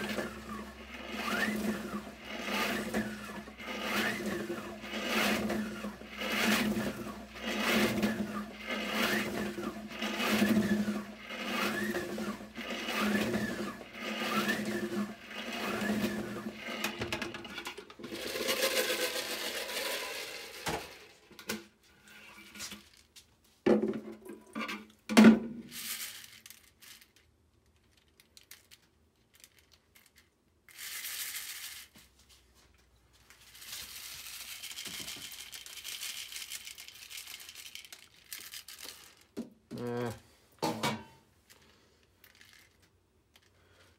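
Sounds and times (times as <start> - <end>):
salad spinner whirring: 0.0 - 21.1
plastic parts rattling: 4.8 - 21.1, 25.7 - 31.9, 33.4 - 39.4, 41.5 - 43.8.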